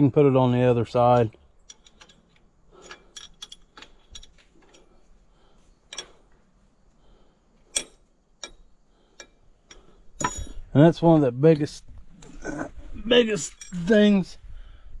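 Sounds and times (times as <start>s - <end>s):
hand tools clicking and tapping: 1.2s - 5.0s, 5.9s - 6.4s, 7.6s - 10.6s.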